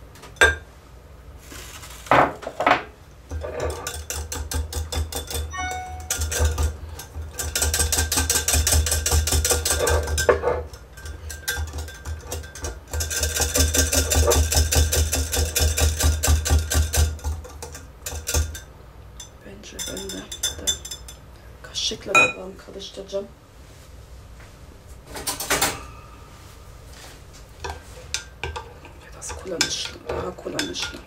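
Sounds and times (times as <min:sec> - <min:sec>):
wire whisk beating in glass jug: 0:03.4 - 0:21.2.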